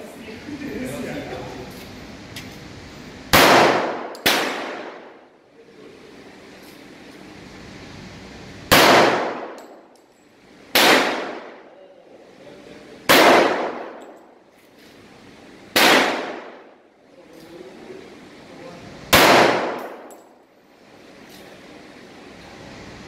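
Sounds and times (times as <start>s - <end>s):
handgun shots echoing: 3.3s - 5.2s, 8.7s - 9.8s, 10.8s - 11.6s, 13.1s - 14.2s, 15.8s - 16.6s, 19.1s - 20.3s.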